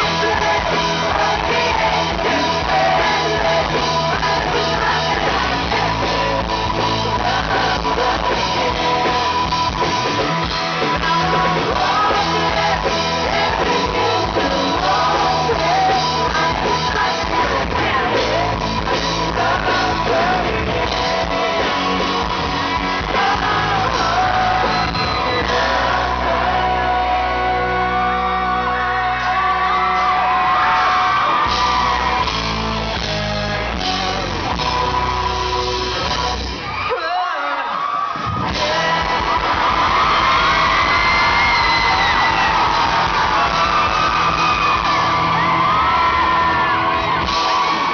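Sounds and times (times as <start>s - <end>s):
man singing lead vocal: 0.0s - 32.3s, 33.4s - 47.9s
live pop-rock band: 0.0s - 47.9s
crowd shouting along: 21.3s - 47.9s.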